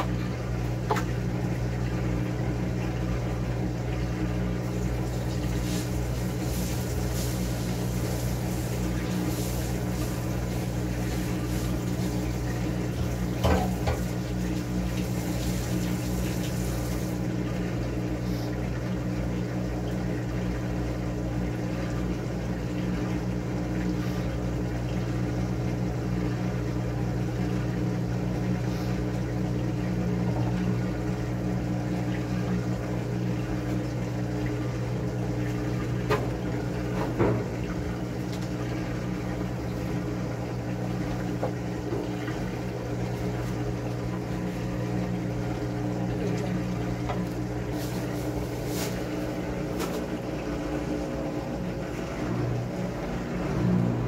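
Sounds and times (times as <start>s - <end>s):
washing machine hum: 0.0s - 54.0s
water rushing into washing machine: 0.0s - 54.0s.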